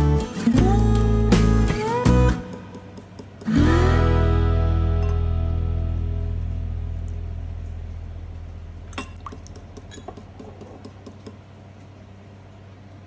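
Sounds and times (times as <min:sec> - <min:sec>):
acoustic guitar music: 0:00.0 - 0:07.5.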